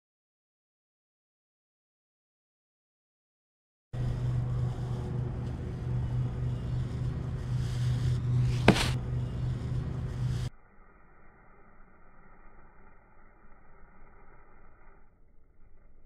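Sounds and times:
low outdoor rumble: 4.0s - 16.0s
sharp knock: 8.5s - 9.0s.

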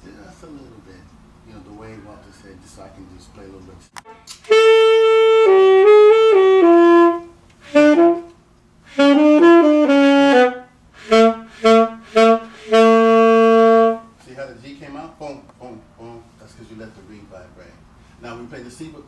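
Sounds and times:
saxophone melody: 4.0s - 14.1s.

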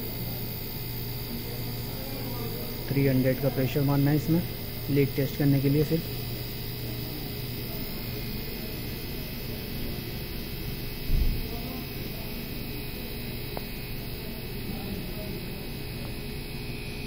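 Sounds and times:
gas hissing through gauge: 0.0s - 17.0s.

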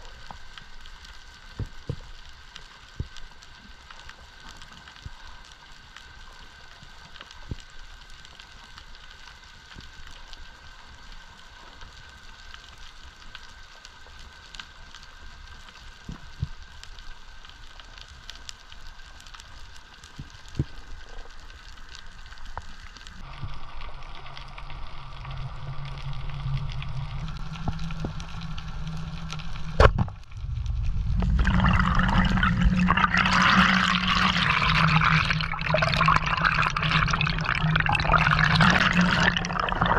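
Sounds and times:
low underwater hiss: 0.0s - 39.9s
rushing bubbling water: 25.0s - 39.9s.

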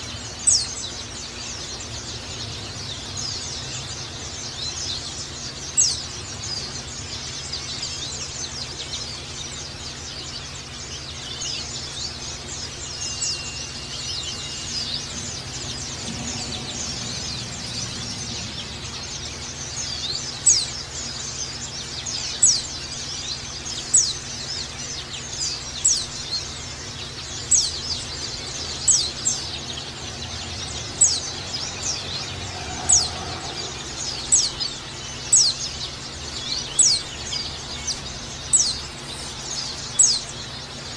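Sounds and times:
birds twittering: 0.0s - 40.9s
sharp high bird chirps: 10.9s - 40.8s.

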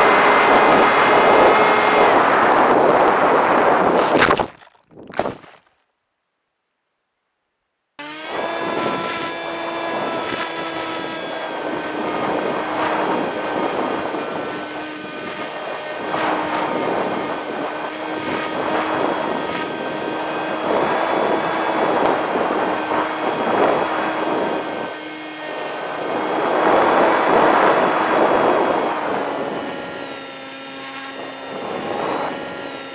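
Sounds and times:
electric motor and propeller whine: 0.0s - 4.2s, 8.0s - 32.9s
wind buffeting microphone: 0.0s - 5.2s, 8.4s - 32.9s.

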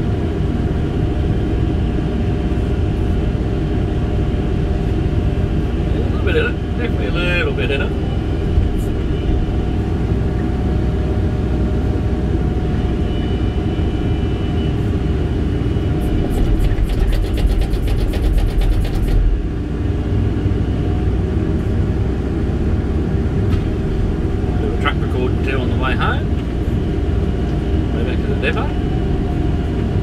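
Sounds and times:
rapid rattling ticking: 16.3s - 19.3s.

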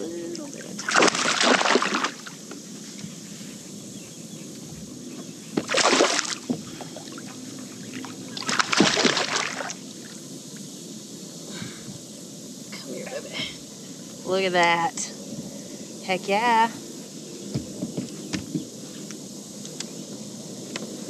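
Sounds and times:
fish thrashing and splashing: 0.7s - 2.3s, 5.6s - 9.8s.

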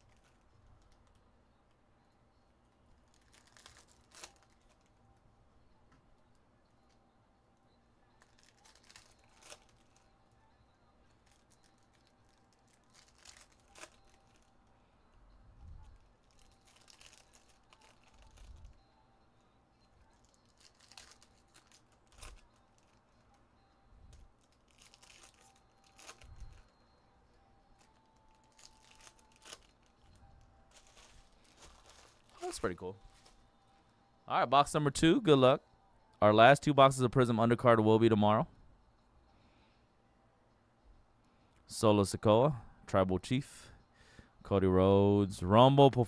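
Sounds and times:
foil wrappers tearing: 3.1s - 4.9s, 8.2s - 10.0s, 11.2s - 14.5s, 16.2s - 18.6s, 20.2s - 23.0s, 24.4s - 26.7s, 27.8s - 30.0s, 30.7s - 33.4s.

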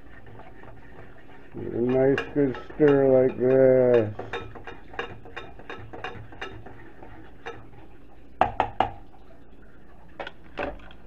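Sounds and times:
fork stirring in saucepan: 0.0s - 10.2s.

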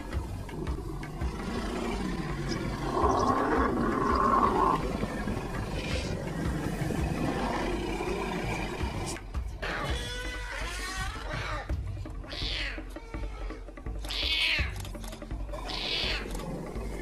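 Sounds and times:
leopard growling and snarling: 0.0s - 10.0s, 15.0s - 17.0s.

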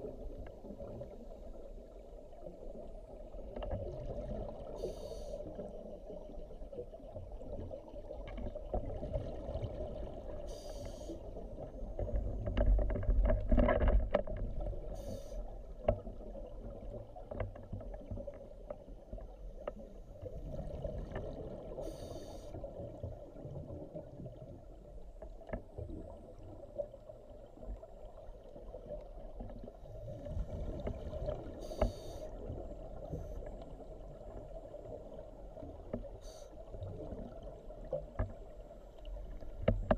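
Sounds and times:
exhaled bubbles rumbling: 0.0s - 39.9s
regulator breathing hiss: 4.8s - 5.4s, 10.5s - 11.2s, 15.0s - 15.4s, 21.8s - 22.6s, 31.6s - 32.3s.

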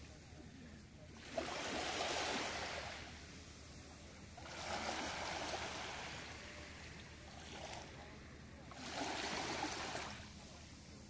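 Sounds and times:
waves washing over pebbles: 1.1s - 3.6s, 4.4s - 10.4s.

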